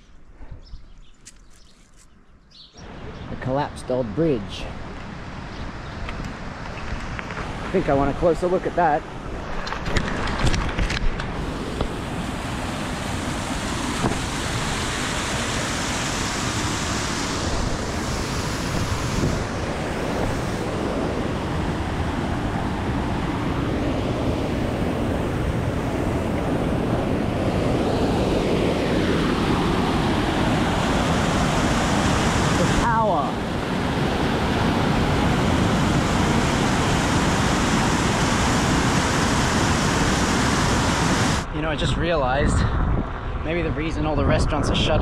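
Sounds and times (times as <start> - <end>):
wind rushing over microphone: 2.8 - 45.0.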